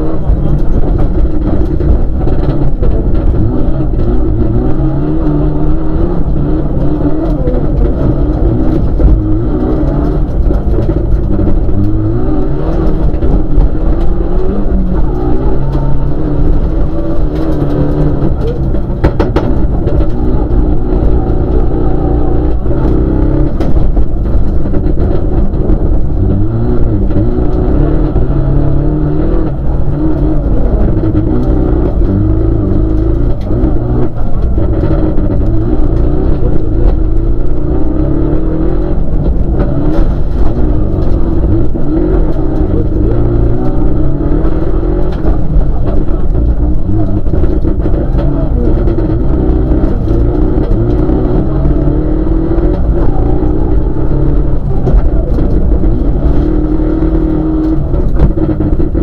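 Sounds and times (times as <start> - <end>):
rally car engine revving: 0.0 - 59.0.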